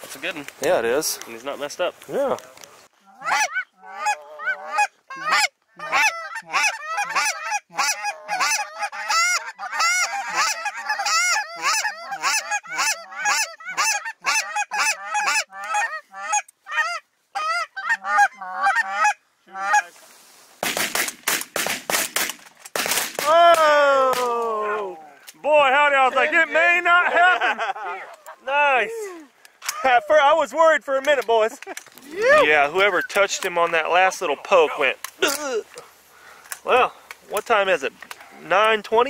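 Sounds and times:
geese honking: 3.1s - 20.0s
shotgun blasts: 20.6s - 23.3s.

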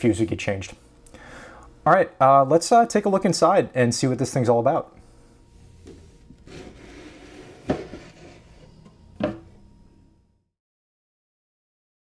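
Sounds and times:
low rubbing handling noise: 5.0s - 9.6s.

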